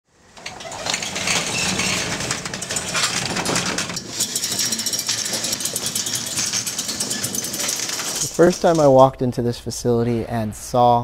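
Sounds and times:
metal door slats rattling: 0.2s - 9.0s
chain links clinking: 0.6s - 8.9s.

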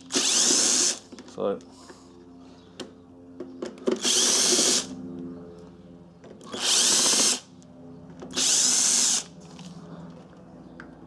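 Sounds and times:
cordless drill running: 0.0s - 1.0s, 3.8s - 4.9s, 6.4s - 7.5s, 8.3s - 9.3s.

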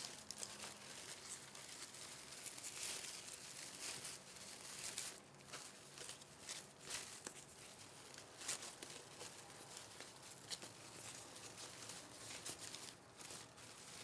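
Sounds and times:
ribbons rustling and crinkling: 0.0s - 14.0s.

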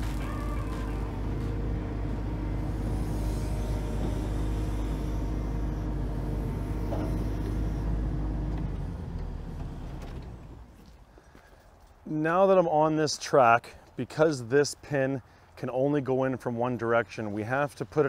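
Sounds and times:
excavator diesel engine running: 0.0s - 10.7s.

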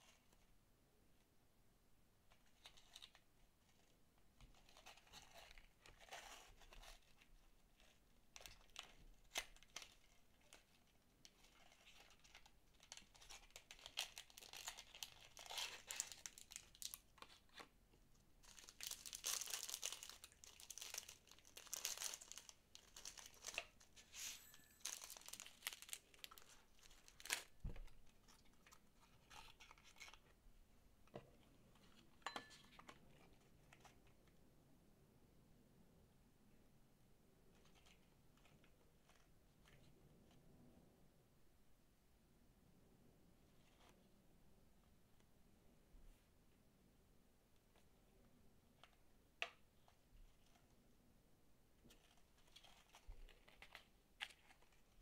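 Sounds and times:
plastic bag crinkling: 11.5s - 17.0s, 18.4s - 30.2s.

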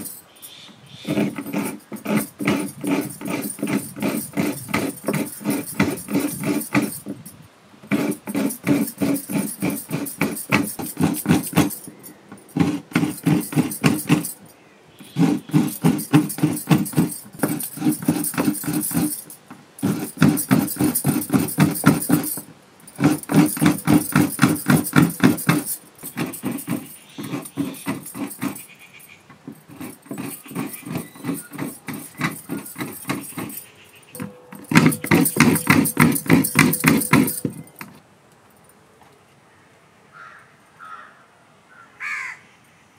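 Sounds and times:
coconut scraping rasps: 0.0s - 38.0s.

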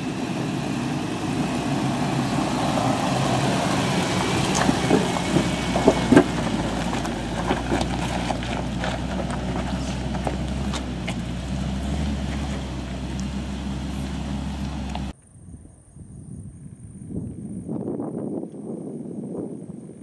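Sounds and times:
vehicle engine running: 0.0s - 15.1s
gravel crunching under tyres: 0.0s - 15.2s
faint wind: 0.0s - 20.0s.

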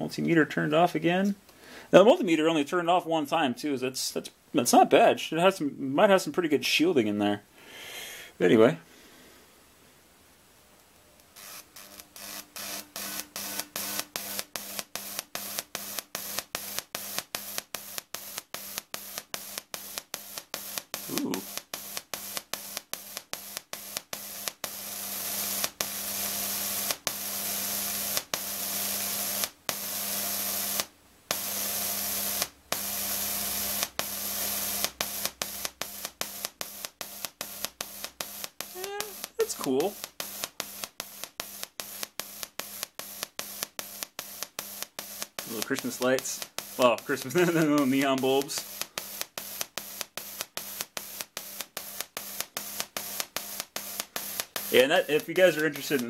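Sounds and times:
tesla coil spark hissing: 11.3s - 56.0s.

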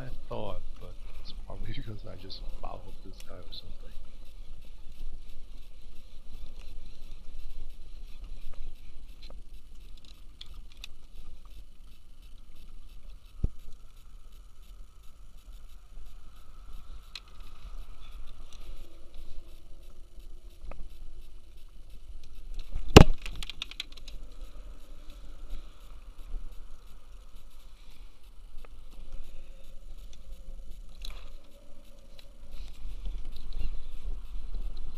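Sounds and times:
wind: 0.0s - 34.9s
light clicks and rustles: 16.3s - 34.9s.

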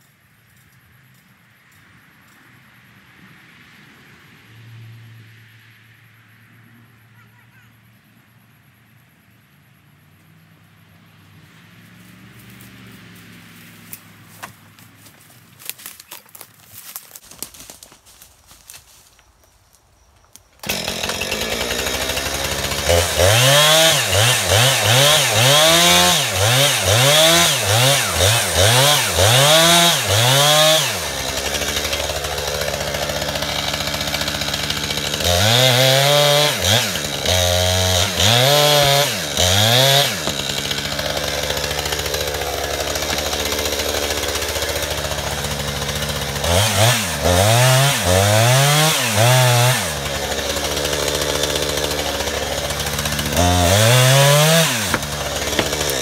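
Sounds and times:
chainsaw idling with throttle blips: 20.6s - 56.0s.

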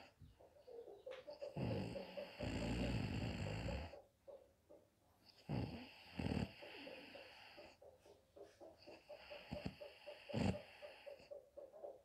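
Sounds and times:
woman snoring: 1.6s - 3.9s, 5.4s - 6.8s.

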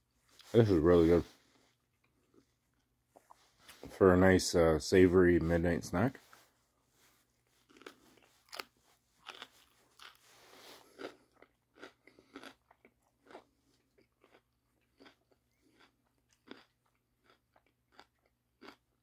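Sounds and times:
person chewing crunchy food: 7.3s - 19.0s.

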